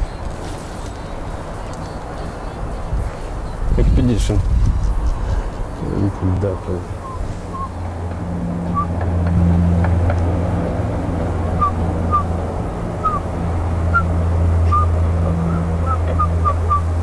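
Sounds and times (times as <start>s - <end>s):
steady low hum: 1.0s - 17.0s
bird soft low whistled calls: 7.0s - 7.8s, 8.7s - 9.0s, 11.6s - 12.4s, 13.0s - 13.3s, 13.9s - 16.9s.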